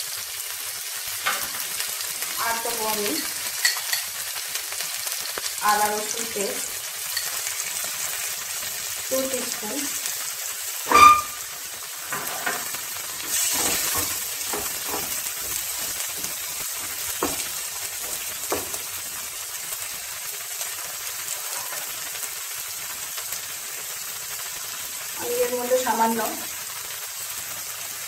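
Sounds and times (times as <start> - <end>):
food sizzling in a pan: 0.0 - 28.0.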